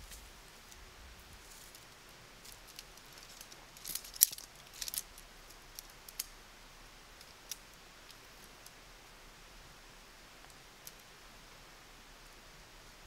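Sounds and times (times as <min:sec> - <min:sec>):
hard objects clicking and rattling: 0:02.5 - 0:05.2.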